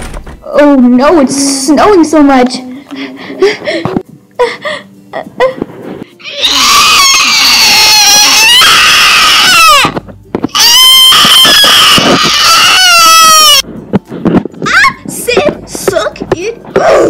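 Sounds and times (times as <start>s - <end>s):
high voice screaming: 6.2s - 13.6s.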